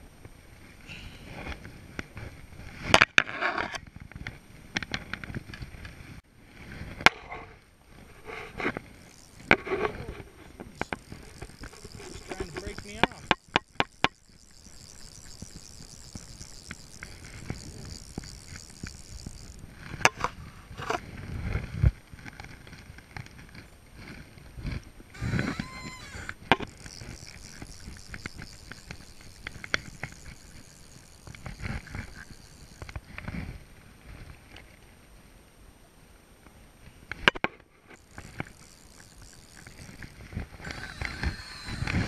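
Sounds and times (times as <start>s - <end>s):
fly reel ratcheting: 7.9s - 21.0s, 21.6s - 34.4s, 37.9s - 42.0s.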